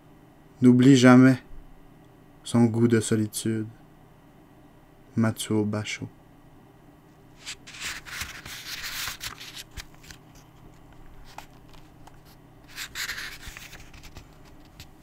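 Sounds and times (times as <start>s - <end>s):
book pages rustling: 7.4s - 15.0s.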